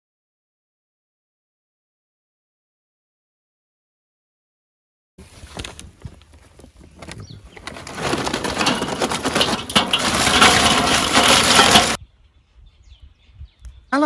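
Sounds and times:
charcoal clattering onto grate: 7.6 - 12.0.

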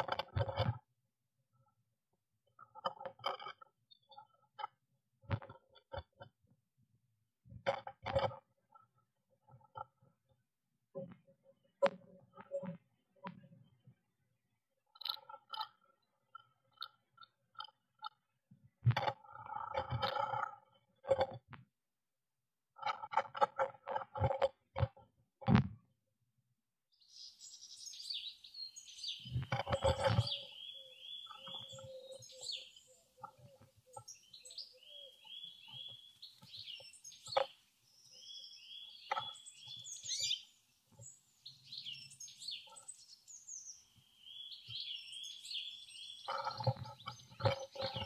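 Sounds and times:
songbird trilling: 27.0 - 33.0, 33.9 - 40.5, 41.4 - 48.0.

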